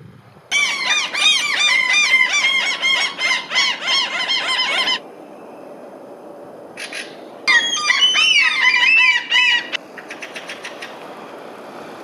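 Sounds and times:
bird chattering song: 6.8 - 11.0.

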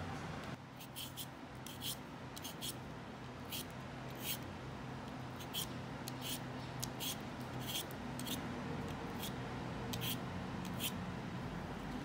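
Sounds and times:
peeler scraping potato: 0.8 - 2.8, 3.5 - 4.5, 5.4 - 8.4, 9.2 - 11.0.

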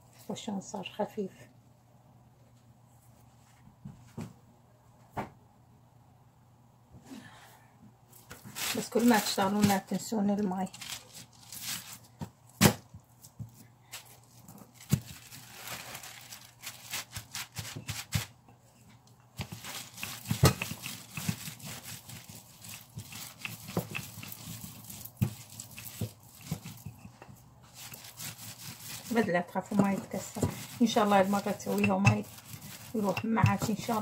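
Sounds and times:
plastic bag crinkling: 8.2 - 12.2, 13.8 - 18.4, 19.4 - 34.0
rolling pin rolling dough: 19.3 - 34.0.

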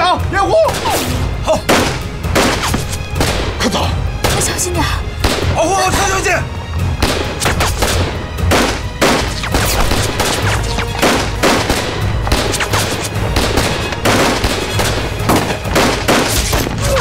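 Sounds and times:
background music: 0.0 - 17.0
gunshots: 1.7 - 3.6, 5.2 - 5.6, 7.0 - 17.0.

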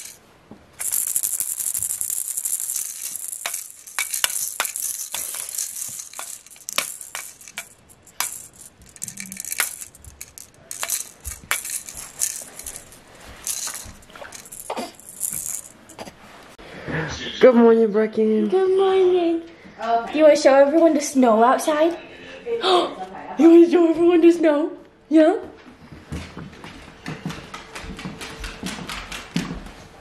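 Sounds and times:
plastic baby rattle shaking: 0.8 - 16.0.

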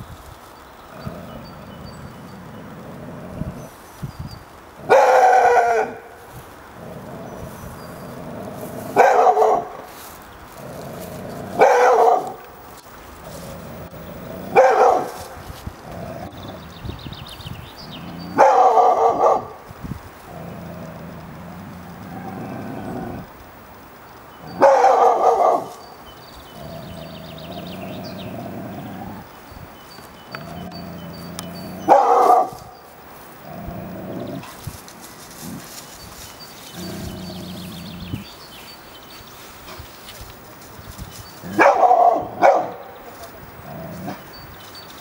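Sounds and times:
dog barking: 4.9 - 6.1, 9.0 - 9.9, 11.6 - 12.4, 14.5 - 15.3, 18.3 - 19.6, 24.6 - 25.8, 31.8 - 32.7, 41.5 - 43.0.

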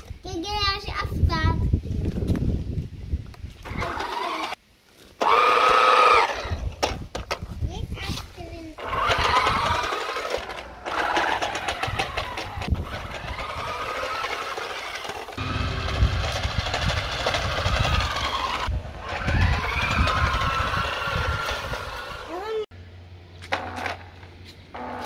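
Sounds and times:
toy car electric motor whining: 3.6 - 4.6, 5.2 - 6.7, 8.8 - 22.5
wheels rattling over paving slabs: 3.6 - 4.6, 8.1 - 22.6, 23.4 - 25.0.

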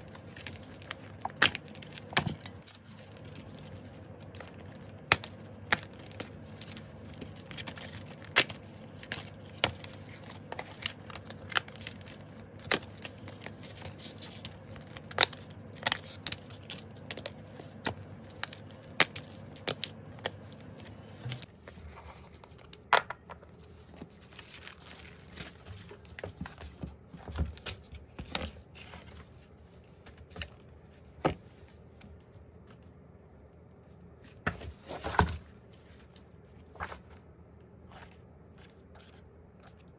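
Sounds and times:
plastic sleeves crinkling: 0.0 - 32.0.

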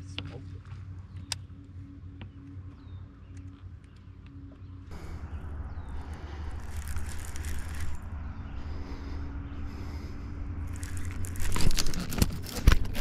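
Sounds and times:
steady low rumble: 0.0 - 12.9
fishing reel cranked quickly: 6.6 - 8.0.

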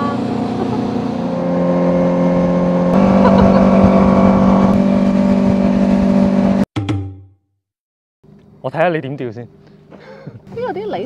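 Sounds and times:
boat motor droning: 0.0 - 6.6.

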